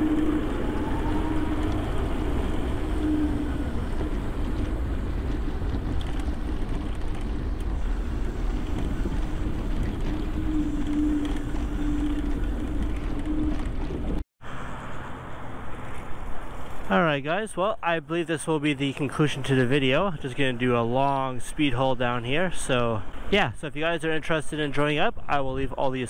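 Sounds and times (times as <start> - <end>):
electric motor hum: 0.0 - 14.2
wind buffeting microphone: 0.0 - 14.2.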